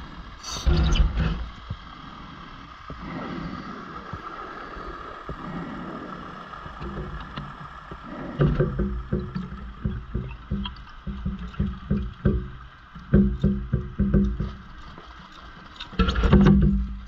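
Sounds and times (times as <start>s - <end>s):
underwater breathing hiss: 0.0s - 9.7s
exhaust bubbles gurgling: 0.0s - 17.0s.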